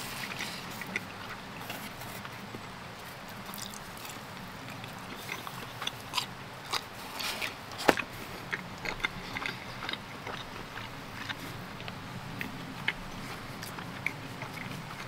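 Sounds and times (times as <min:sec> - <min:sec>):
chewing and biting pizza: 0:00.0 - 0:15.0.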